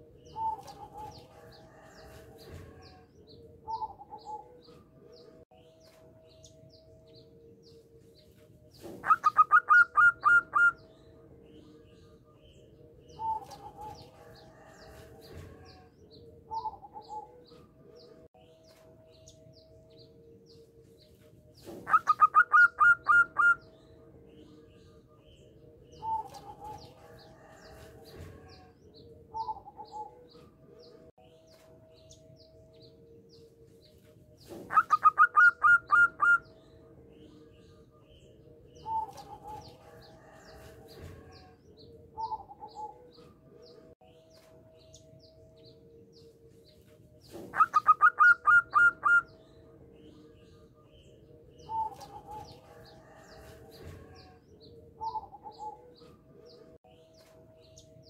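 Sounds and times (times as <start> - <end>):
dove cooing: 0.0 - 3.0, 3.6 - 4.7, 8.8 - 10.8, 13.1 - 15.9, 16.5 - 17.5, 21.7 - 23.7, 25.9 - 28.7, 34.5 - 36.5, 42.2 - 43.2, 47.3 - 49.4, 55.0 - 56.0.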